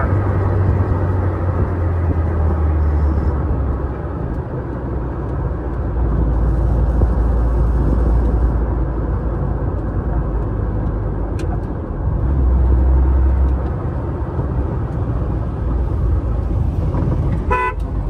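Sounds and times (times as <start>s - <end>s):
wind noise: 0.0s - 10.7s
car engine running: 0.0s - 18.0s
road noise: 0.0s - 18.0s.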